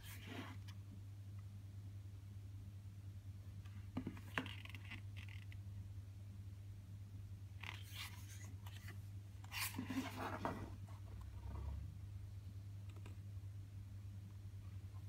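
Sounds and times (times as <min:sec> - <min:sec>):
paper pages rustling and sliding: 0:07.7 - 0:10.9.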